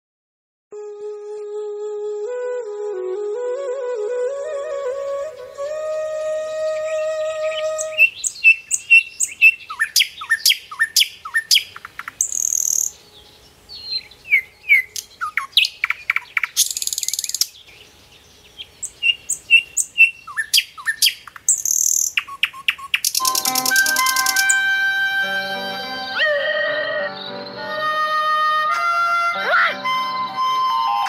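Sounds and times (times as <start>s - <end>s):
birds chirping: 4.8s - 31.0s
high buzzy bird trill: 4.9s - 13.0s, 18.9s - 28.7s.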